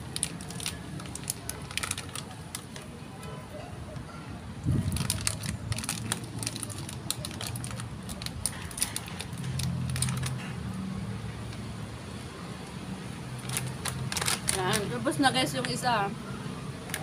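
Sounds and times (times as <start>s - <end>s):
chips being chewed: 4.8s - 10.5s.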